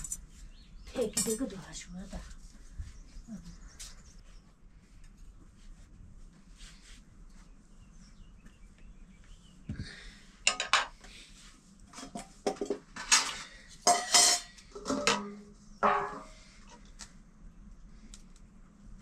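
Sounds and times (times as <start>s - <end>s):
metal pots and utensils clattering: 10.5s - 10.9s, 11.9s - 16.5s.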